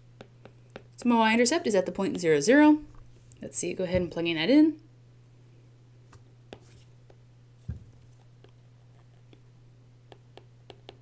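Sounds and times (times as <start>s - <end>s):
steady low hum: 0.0s - 11.0s
stylus tapping on tablet screen: 0.2s - 0.9s, 10.1s - 11.0s
low thud: 7.7s - 8.0s.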